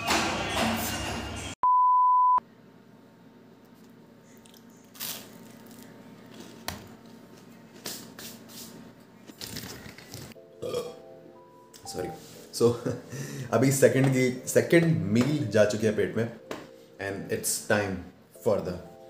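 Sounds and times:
test tone beep: 1.6 - 2.4.

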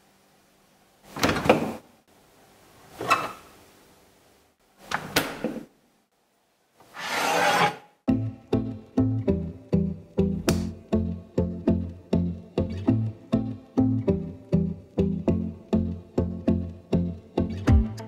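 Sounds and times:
refrigerator door opening: 1.1 - 1.8
frying pan scraping on shelf: 6.9 - 7.9.

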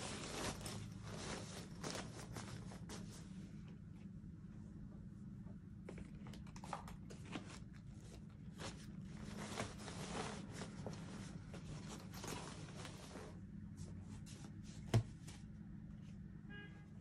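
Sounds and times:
fabric bag rustling: 0.0 - 3.3, 7.3 - 13.5
low steady hum: 0.0 - 17.0.

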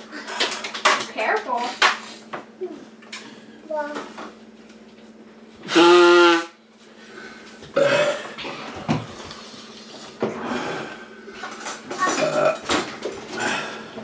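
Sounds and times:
man blowing his nose: 5.6 - 6.6.

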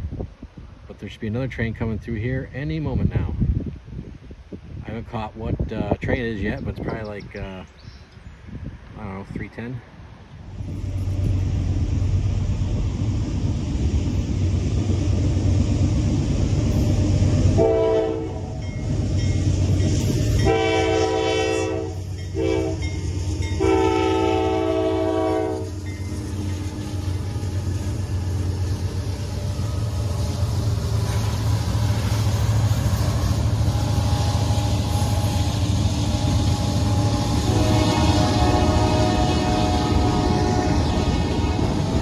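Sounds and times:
diesel locomotive rumble: 8.4 - 42.0
train horn: 17.4 - 18.6, 20.4 - 25.8, 33.0 - 42.0.

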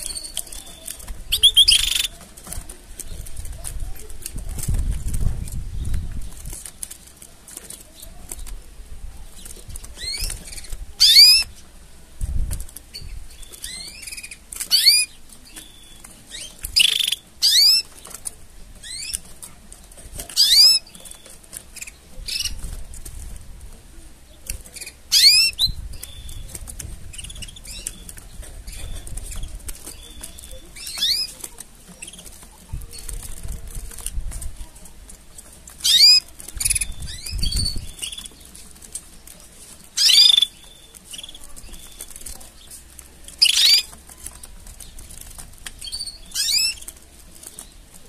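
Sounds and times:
canaries chirping: 0.0 - 48.0.

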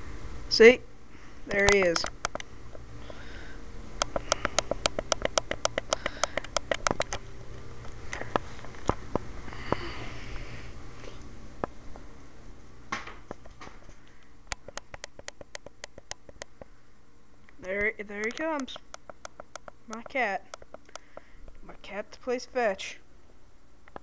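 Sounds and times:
steady low hum: 0.0 - 24.0
sharp clicks and taps: 1.5 - 2.5, 4.0 - 7.3, 14.5 - 16.7, 17.5 - 21.6.

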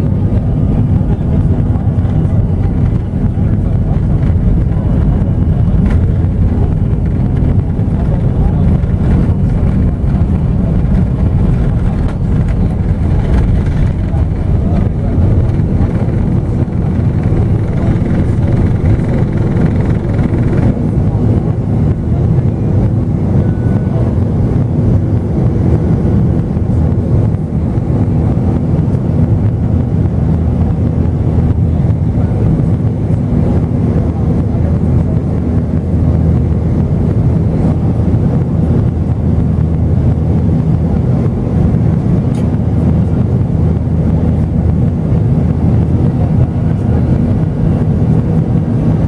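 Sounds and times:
rushing air: 0.0 - 21.3
jet engines low drone: 0.0 - 49.0.

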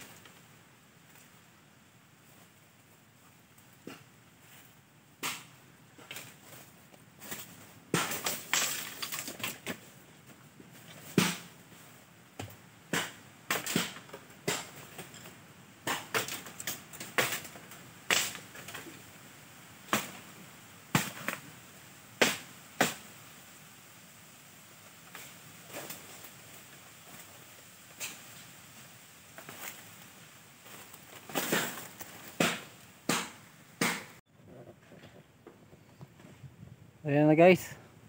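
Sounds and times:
bamboo cracking and knocking: 3.3 - 19.1, 19.8 - 21.5, 24.8 - 35.9.

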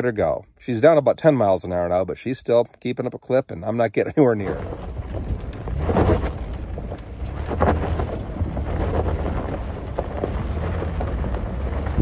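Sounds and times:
truck engine and tyres rumbling: 0.0 - 12.0
knocks and rattles: 4.4 - 12.0.

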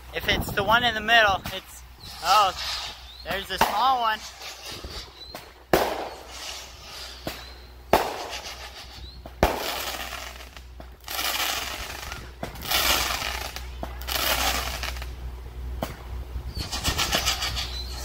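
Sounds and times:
firework shells bursting: 1.4 - 15.2
fireworks hissing sparks: 1.5 - 15.2, 16.5 - 18.0.

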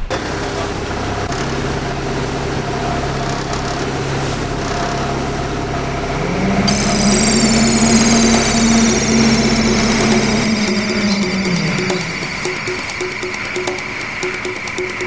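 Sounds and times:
boat engine droning: 0.5 - 15.0
music: 6.0 - 15.0.

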